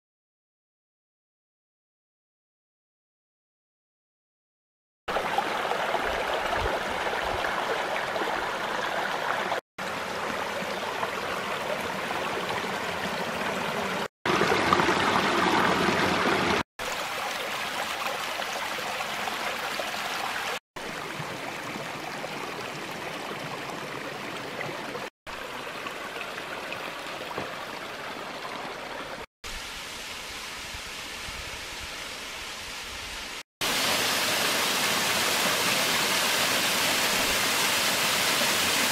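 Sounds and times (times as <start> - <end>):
stream rushing over rocks: 5.1 - 38.9.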